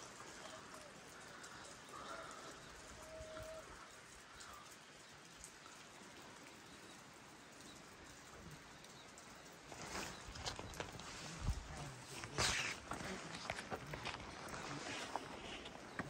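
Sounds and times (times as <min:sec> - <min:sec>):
faint outdoor hiss: 0:00.0 - 0:16.0
rustling: 0:09.5 - 0:16.0.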